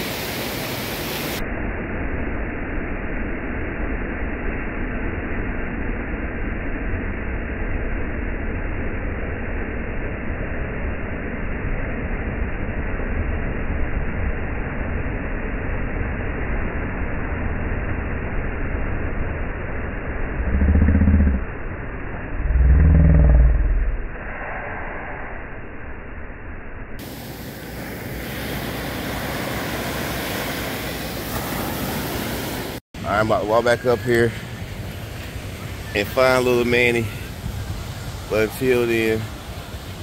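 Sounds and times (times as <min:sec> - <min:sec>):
steady background noise: 0:26.9 - 0:40.0.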